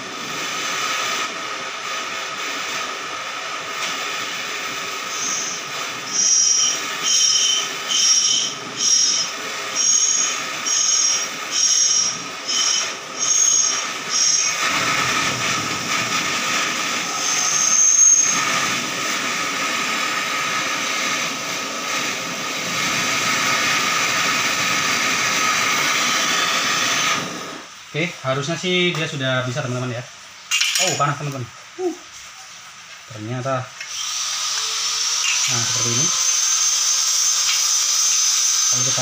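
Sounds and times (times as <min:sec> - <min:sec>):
gas torch flame hissing: 0:00.0 - 0:39.0
high whistle: 0:05.1 - 0:14.6, 0:17.0 - 0:18.6.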